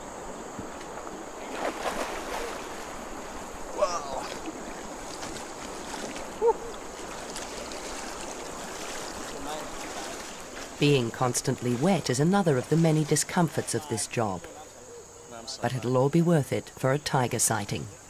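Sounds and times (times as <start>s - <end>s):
water rushing: 0.0s - 14.6s.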